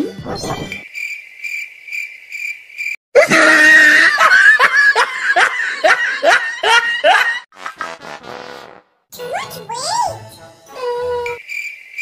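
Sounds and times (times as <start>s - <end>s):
cartoonish laughter sound effect: 3.2s - 8.0s
cricket chirp sound effect: 11.2s - 12.0s.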